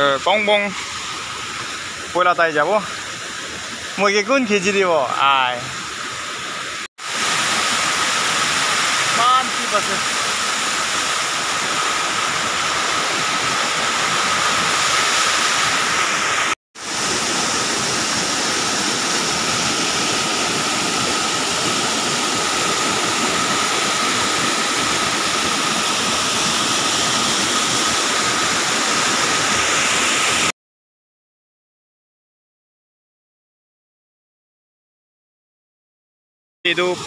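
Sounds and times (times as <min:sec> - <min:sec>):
waterfall rushing: 0:07.0 - 0:30.5.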